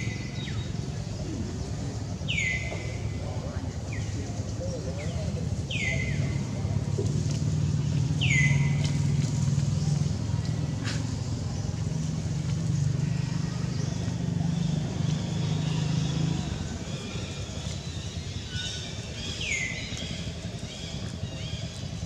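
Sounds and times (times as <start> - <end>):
motor vehicle engine humming: 0.0 - 22.0.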